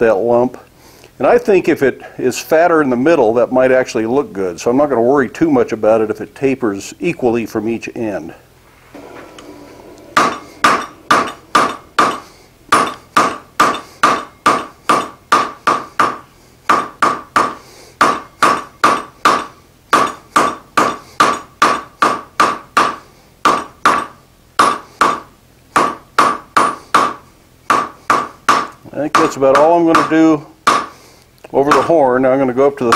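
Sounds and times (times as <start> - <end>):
hammer ringing on anvil: 10.2 - 21.4.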